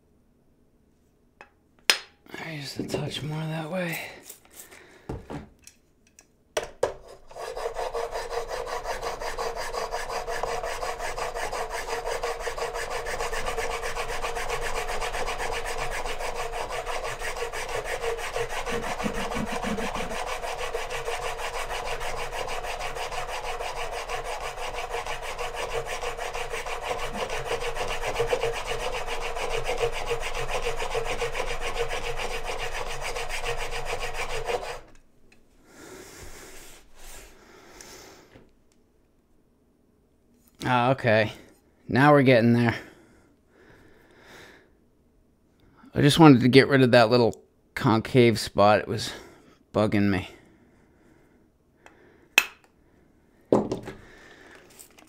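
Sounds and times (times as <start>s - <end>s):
blade scraping on sharpening plate: 7.1s - 34.9s.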